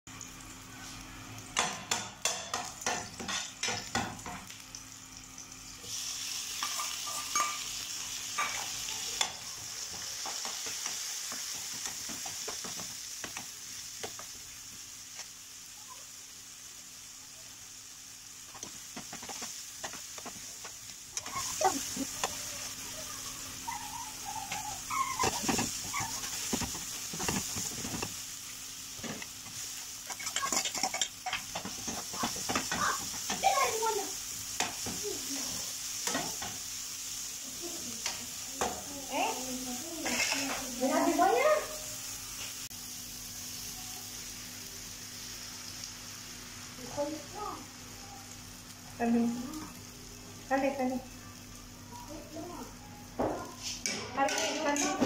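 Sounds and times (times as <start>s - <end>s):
onions sizzling in frying pan: 0.1s - 55.0s
spatula scraping pan: 24.1s - 28.1s, 30.1s - 33.4s, 40.0s - 41.0s.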